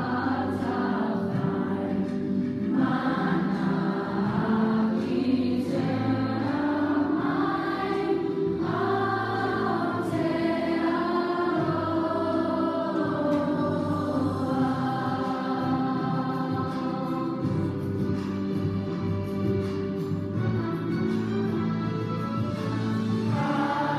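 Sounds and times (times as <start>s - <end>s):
children singing in unison: 0.0s - 18.6s, 23.0s - 23.9s.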